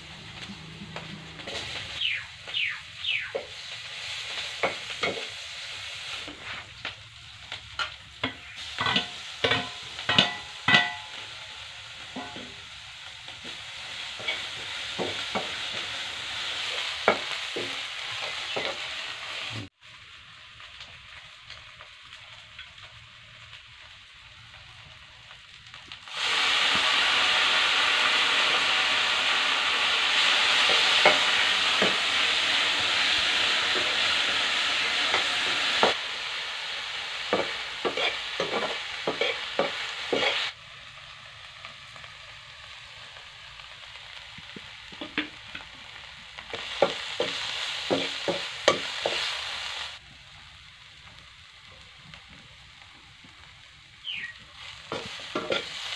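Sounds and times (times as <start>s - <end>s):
food sizzling in oil: 0.0s - 55.9s
metal spatula scraping wok: 14.0s - 15.8s, 37.3s - 40.5s, 54.6s - 55.9s.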